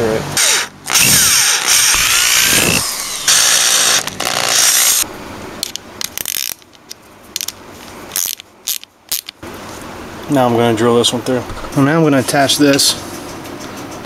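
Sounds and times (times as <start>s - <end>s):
electric drill boring through plastic pipe: 0.4s - 5.0s
ratchet wrench clicking: 6.2s - 6.6s, 8.2s - 9.3s.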